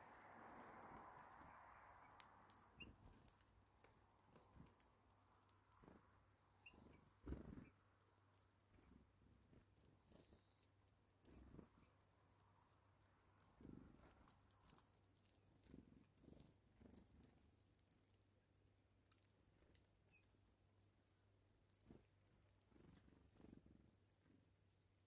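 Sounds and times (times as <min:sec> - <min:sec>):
wing flutters: 0:00.0 - 0:10.6
birds pecking seeds: 0:00.0 - 0:25.0.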